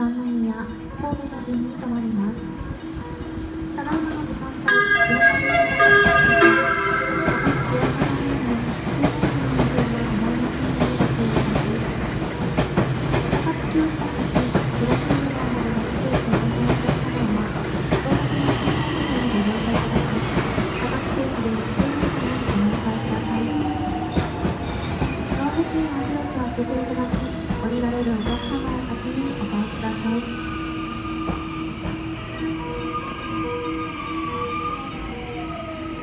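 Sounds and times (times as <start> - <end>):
loud pitched tone: 4.7 - 8.4.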